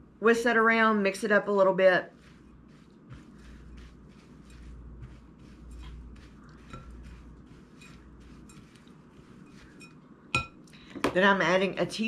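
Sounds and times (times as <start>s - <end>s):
spatula scraping oats in glass bowl: 1.8s - 10.6s.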